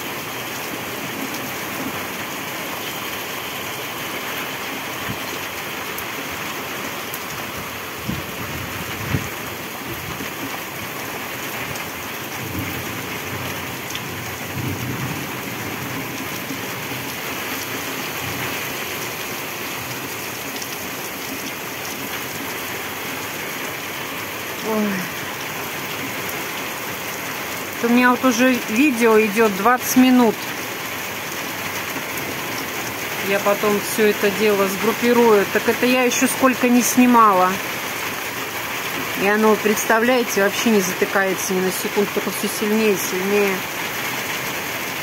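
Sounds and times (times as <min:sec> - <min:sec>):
heavy rain falling: 0:00.0 - 0:45.0
low rumbles of thunder: 0:12.4 - 0:17.1.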